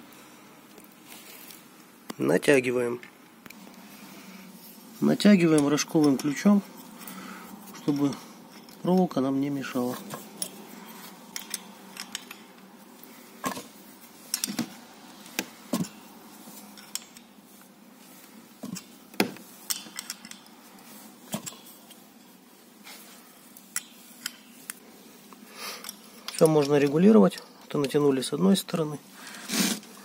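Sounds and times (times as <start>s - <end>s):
wrench clinking on bolt: 11.4s - 12.4s, 25.8s - 28.0s.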